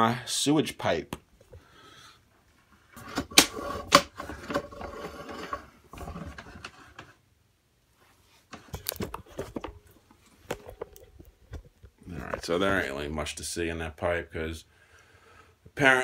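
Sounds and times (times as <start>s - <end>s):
camera reel cable clicking and rattling: 8.5s - 11.8s.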